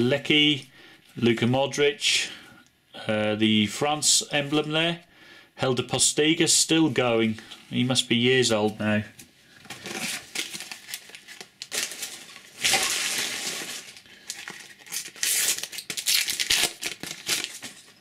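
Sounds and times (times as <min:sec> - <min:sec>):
paper packet crinkling and tearing: 0:09.6 - 0:18.0.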